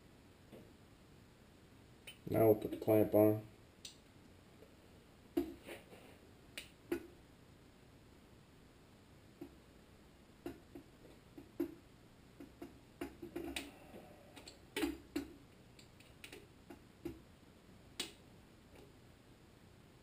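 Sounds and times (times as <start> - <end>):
small clicks and taps: 10.4 - 11.8, 12.4 - 13.7, 14.4 - 17.2.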